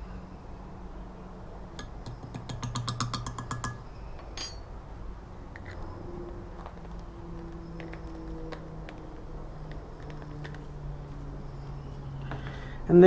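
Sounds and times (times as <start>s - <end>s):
metal scoop clinking on glass: 4.4s - 4.7s.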